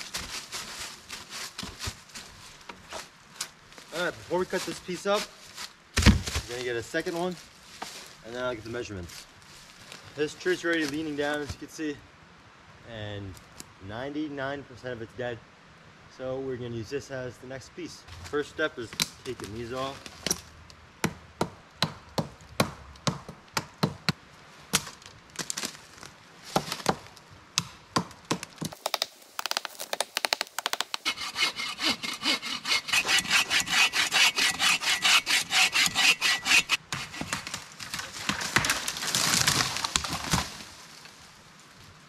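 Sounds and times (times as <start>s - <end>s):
hand saw cutting wood: 30.8s - 37.6s.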